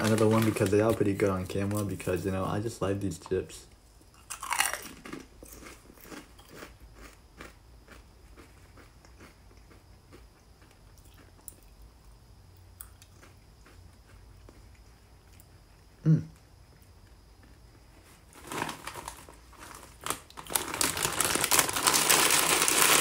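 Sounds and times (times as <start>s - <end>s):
potato chip crunching: 0.0s - 3.4s, 4.2s - 11.7s, 18.3s - 23.0s.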